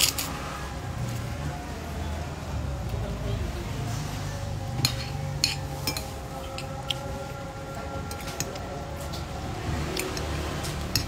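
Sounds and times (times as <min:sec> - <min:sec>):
cutlery clinking on glass bowl: 0:04.8 - 0:07.0.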